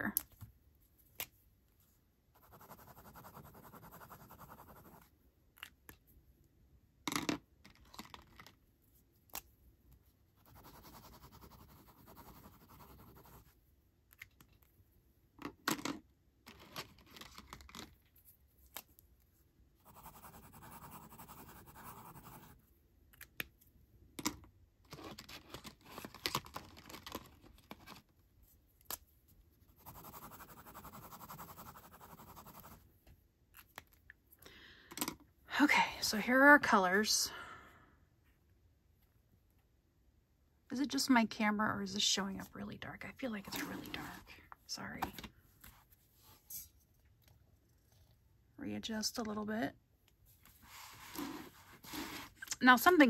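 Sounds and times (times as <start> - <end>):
pen scratching on paper: 2.4 - 5.0, 10.4 - 13.5, 19.8 - 22.6, 29.8 - 32.8.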